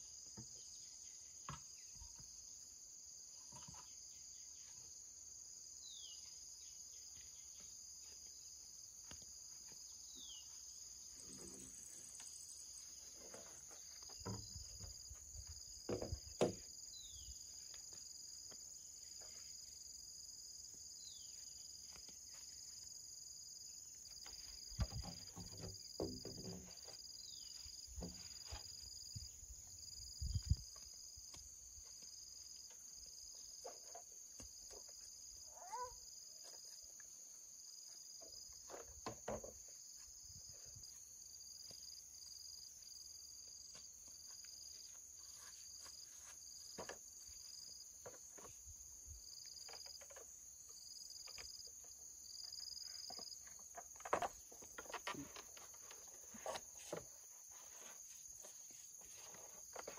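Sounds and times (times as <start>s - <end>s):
insects droning: 0.0s - 59.9s
knocks and thumps: 14.1s - 16.7s, 24.7s - 27.0s.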